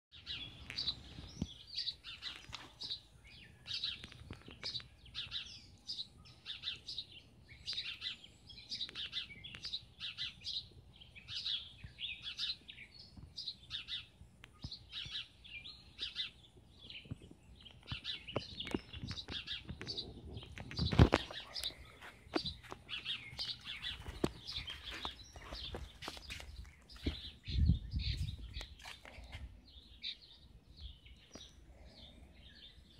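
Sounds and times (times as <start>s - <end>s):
young starling raspy chirps: 20.8s - 25.8s.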